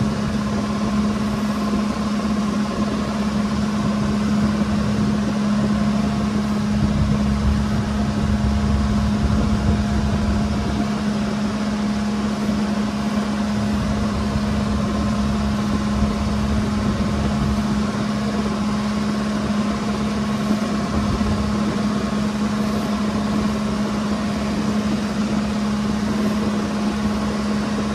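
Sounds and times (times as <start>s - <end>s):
boat engine droning: 0.0s - 27.9s
water and wind hiss: 0.0s - 27.9s.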